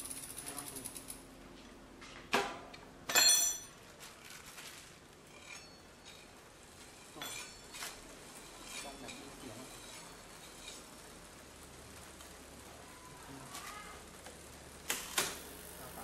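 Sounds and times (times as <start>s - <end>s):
ringing metal or glass clinks: 3.1s - 3.8s.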